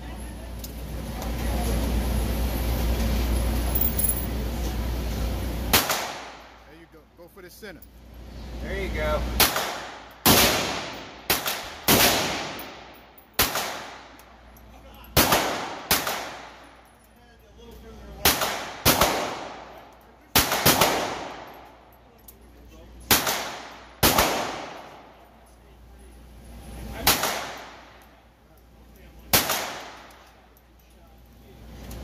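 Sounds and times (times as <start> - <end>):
pistol shots echoing indoors: 5.7 - 6.4, 9.4 - 12.8, 13.4 - 14.2, 15.2 - 16.6, 18.2 - 21.5, 23.1 - 25.1, 27.0 - 27.8, 29.3 - 30.3.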